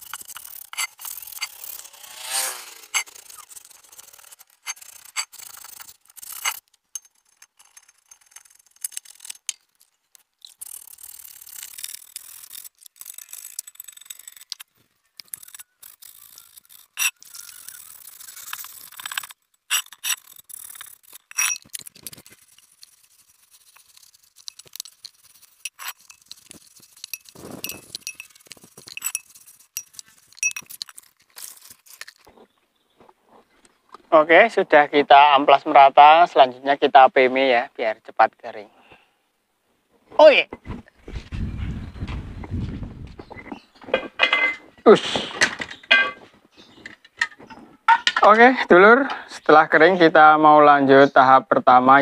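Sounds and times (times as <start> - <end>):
sandpaper scratching on metal wheel: 0.0 - 6.6, 7.2 - 9.6, 10.5 - 14.6, 15.2 - 32.0
small clinks: 2.8 - 32.3.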